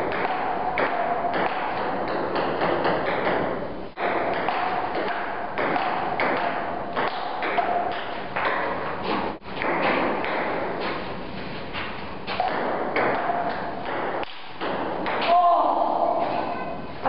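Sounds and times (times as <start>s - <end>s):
ping pong ball clicking off paddles: 0.0s - 9.0s, 12.3s - 15.3s
ping pong ball bouncing on table: 0.1s - 8.9s, 12.4s - 15.3s.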